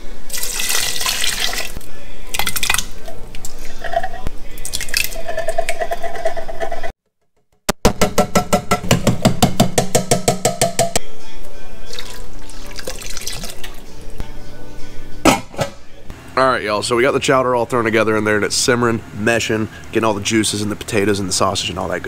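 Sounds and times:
soft pouring: 11.9 - 13.9.

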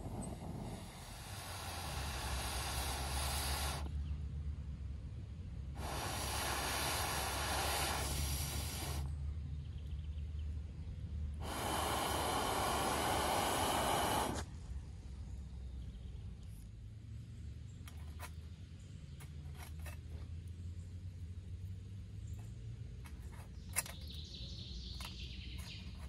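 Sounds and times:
breath blown through pipe hissing: 0.0 - 4.0, 5.8 - 9.1, 11.4 - 14.5.

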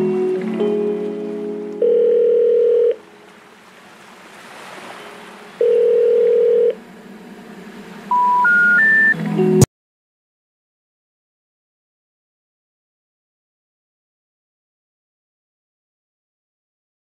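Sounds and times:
steady low telephone tone: 1.7 - 3.0, 5.6 - 6.8, 8.1 - 9.2
short rising beeps: 8.1 - 9.2.

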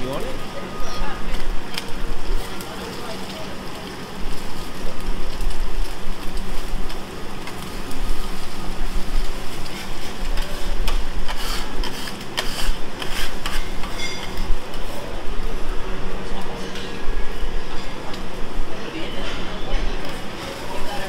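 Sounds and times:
fried rice sizzling: 0.0 - 21.0
metal spatula scraping griddle: 9.5 - 14.9.

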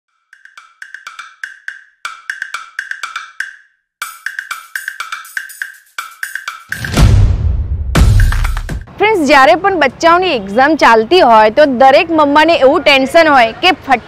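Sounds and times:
wood-block-like clicks: 0.1 - 7.0.

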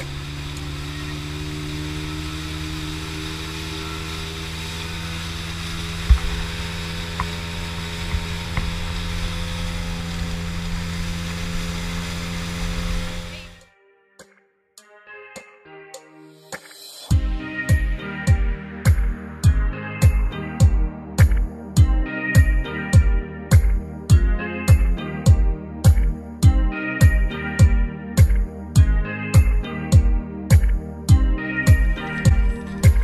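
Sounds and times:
outboard motor humming: 0.0 - 13.6
low thumps: 6.0 - 9.1.

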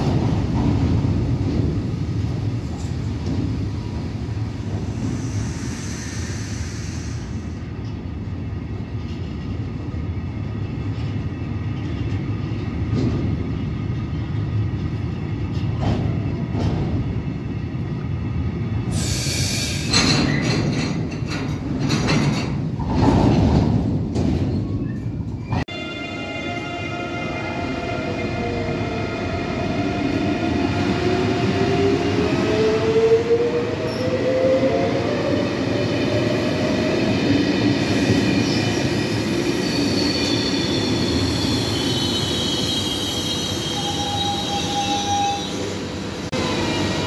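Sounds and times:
freight train wheels rumbling: 0.0 - 47.0
clacks at rail joints: 19.9 - 25.1.

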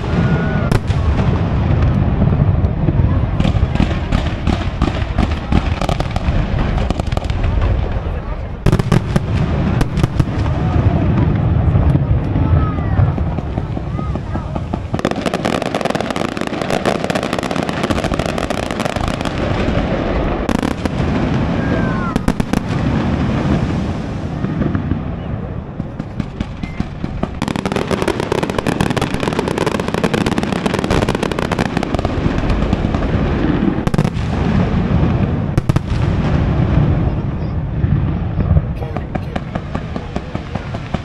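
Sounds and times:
firework whistle: 0.0 - 1.2
fireworks bangs: 0.0 - 41.0
fireworks crackling: 0.0 - 41.0.

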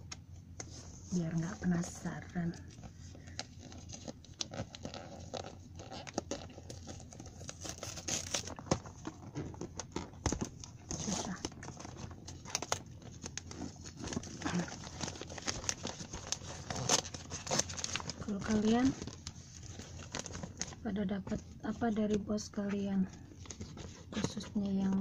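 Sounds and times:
wrapping paper crinkling and tearing: 1.2 - 10.1, 10.7 - 20.9.

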